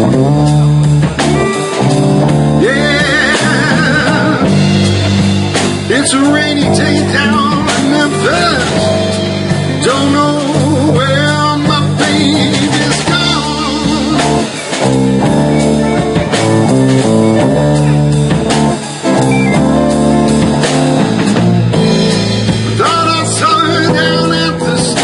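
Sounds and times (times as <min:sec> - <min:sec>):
bass guitar: 0:00.0 - 0:25.0
drums: 0:00.0 - 0:25.0
electric guitars: 0:00.0 - 0:25.0
person singing: 0:02.6 - 0:05.0, 0:05.8 - 0:09.1, 0:09.7 - 0:14.8, 0:22.7 - 0:25.0.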